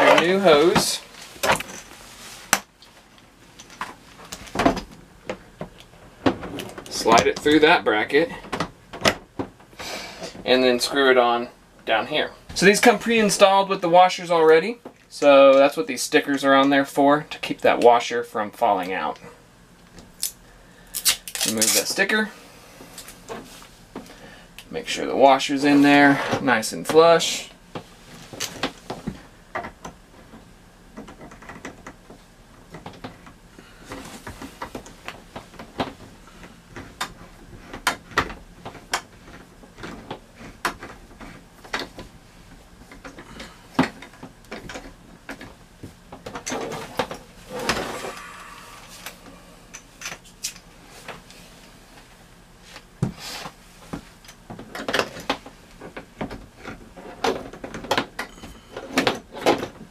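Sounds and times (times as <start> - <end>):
scraping rustle: 46.5 - 49.1.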